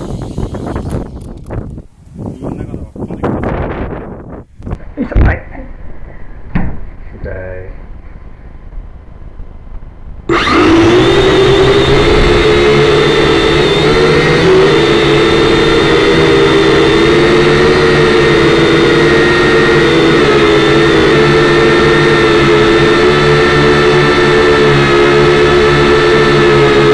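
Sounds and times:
quadcopter rotors buzzing: 0.0s - 4.0s, 10.3s - 26.9s.

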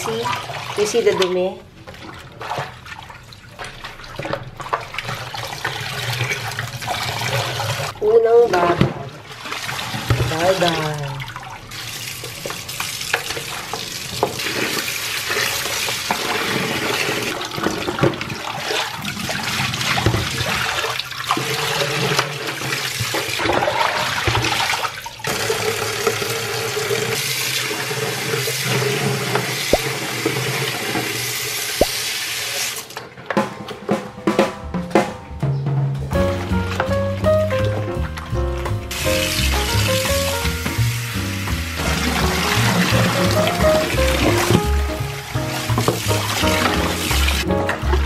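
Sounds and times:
water sloshed by hand: 0.1s - 8.0s, 8.6s - 25.3s, 41.8s - 48.0s
tap water pouring: 8.6s - 33.1s, 37.6s - 48.0s.

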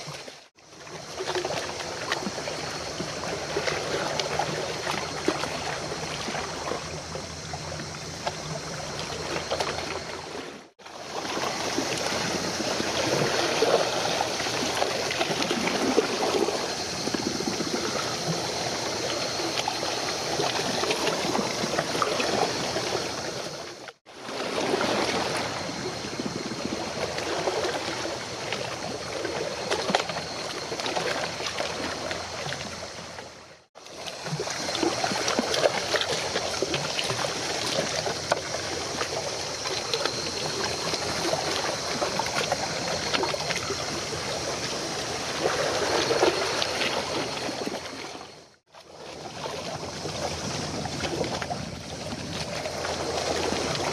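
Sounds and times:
water splashing and trickling: 0.0s - 53.9s.

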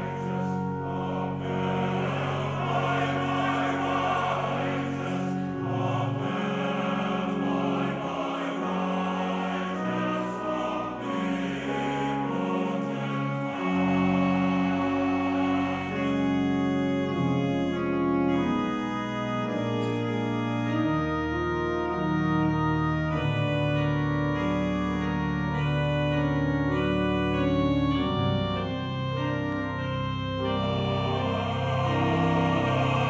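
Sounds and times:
men's chorus singing: 0.0s - 17.9s, 30.4s - 33.0s
church organ chords: 0.0s - 33.0s.

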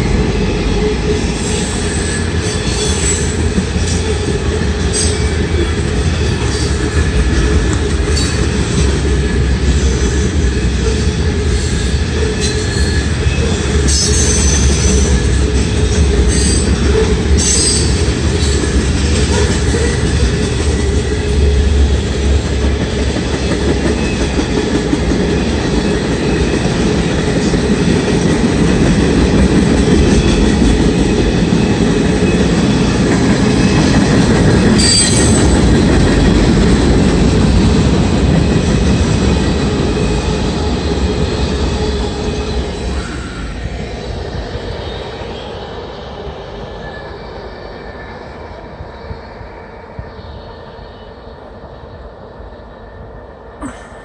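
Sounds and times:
train wheels rumbling on rail: 0.0s - 54.0s
high wheel squeal: 34.8s - 35.7s.

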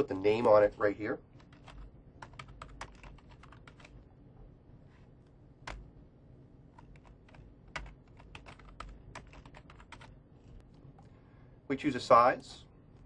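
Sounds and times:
keyboard typing: 1.4s - 4.0s, 5.6s - 5.8s, 6.7s - 10.2s.

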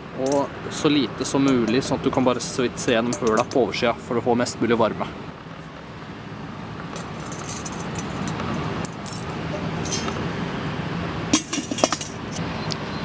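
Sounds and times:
steady background noise: 0.0s - 13.0s
metal grill lid clanking: 11.3s - 12.2s.

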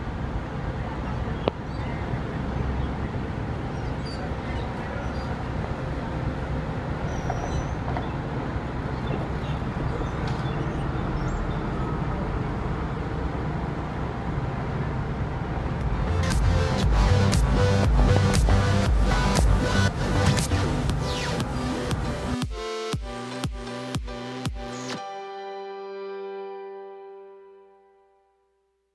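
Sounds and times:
muffled bus diesel engine: 0.0s - 22.4s.

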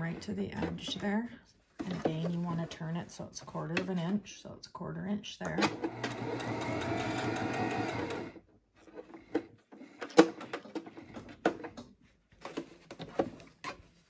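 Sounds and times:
electric sewing machine running: 5.7s - 8.4s.

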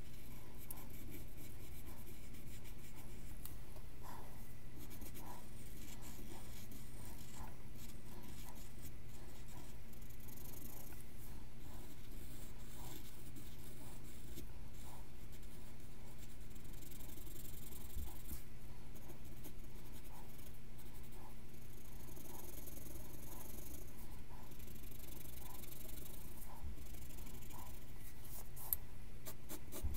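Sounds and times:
pencil scratching on paper: 0.0s - 29.9s
steady low hum: 0.0s - 29.9s.

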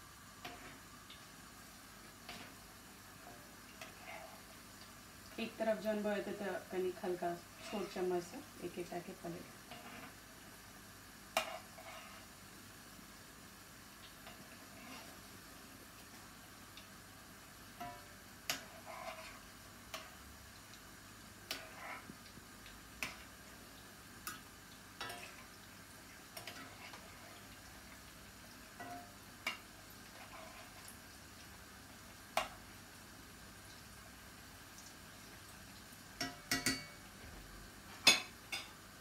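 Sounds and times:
oil sizzling: 0.0s - 39.0s.

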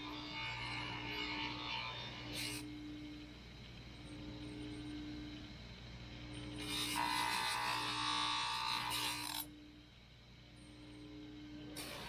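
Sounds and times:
bench grinder humming: 0.0s - 3.2s, 6.3s - 9.6s
metal grinding on wheel: 6.6s - 9.5s.

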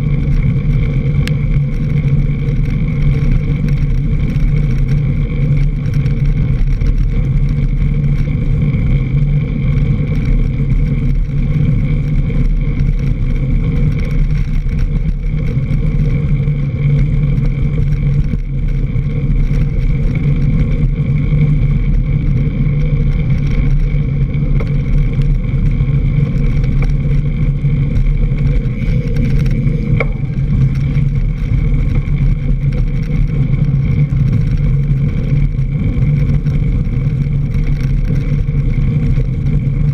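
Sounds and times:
bike tyre rumble on dirt trail: 0.0s - 39.9s
wind on camera: 0.0s - 39.9s
sharp tick: 1.2s - 1.4s.

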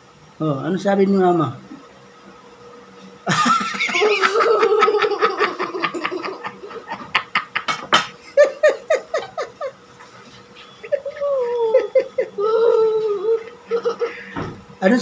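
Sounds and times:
girl laughing hard: 3.3s - 9.8s, 10.6s - 14.4s.

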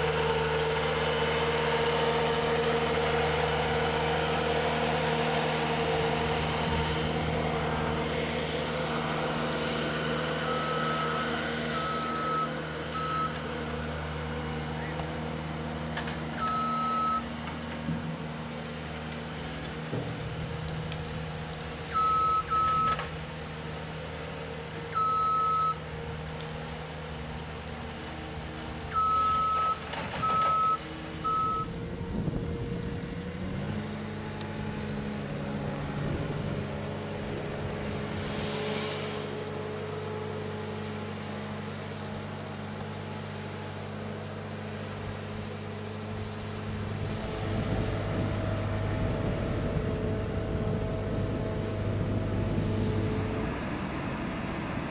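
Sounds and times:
diesel engine running: 0.0s - 54.9s
reversing alarm beeps: 10.4s - 13.4s, 16.4s - 17.3s, 22.0s - 23.0s, 25.0s - 25.8s, 28.9s - 31.7s.

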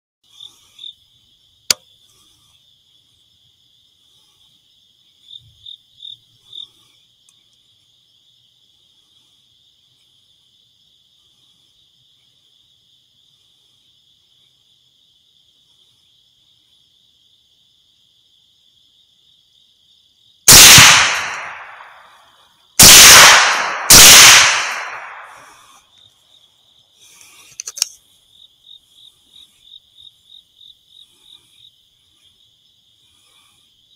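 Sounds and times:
crickets chirring: 0.2s - 33.9s
rifle shots with echo: 20.5s - 22.0s, 22.8s - 25.6s.

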